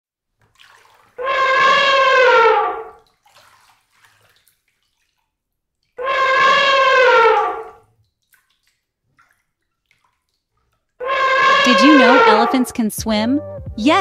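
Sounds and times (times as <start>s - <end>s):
elephant trumpeting: 1.2s - 3.0s, 6.0s - 7.8s, 11.0s - 12.7s.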